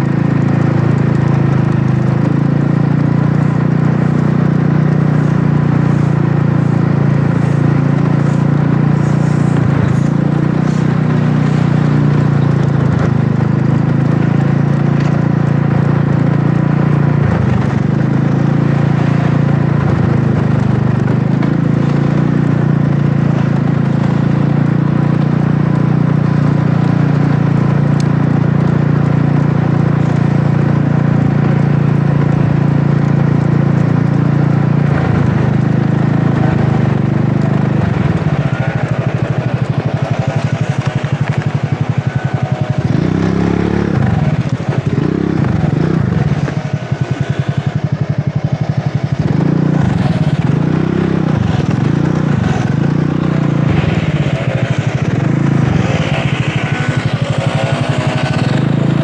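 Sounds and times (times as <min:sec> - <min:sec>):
scooter engine running: 0:00.0 - 0:59.0.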